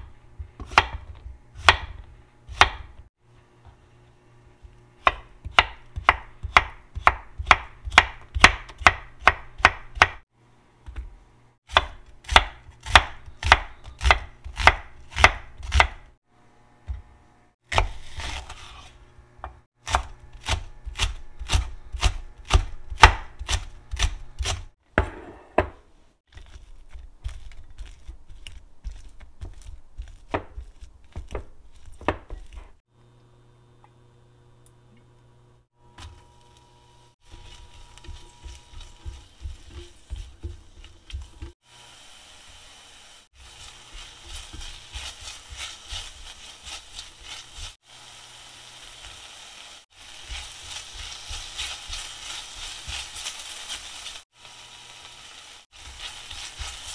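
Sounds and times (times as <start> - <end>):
knife chopping on wooden board: 0.0 - 3.0, 5.0 - 10.2, 11.7 - 16.0, 17.7 - 18.5, 19.4 - 32.8.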